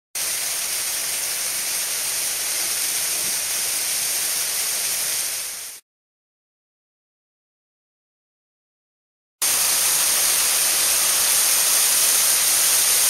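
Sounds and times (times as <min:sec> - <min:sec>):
waterfall pouring: 0:00.2 - 0:05.8, 0:09.4 - 0:13.0.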